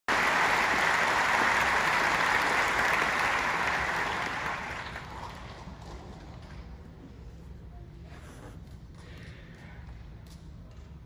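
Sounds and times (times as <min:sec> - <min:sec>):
audience applauding: 0:00.1 - 0:05.6.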